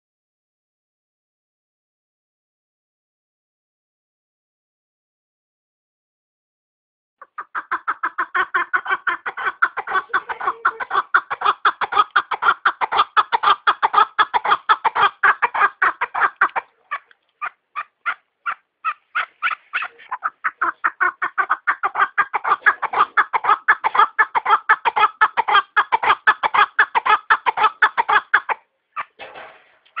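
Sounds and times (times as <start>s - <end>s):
partridge clucking calls: 7.2s - 30.0s.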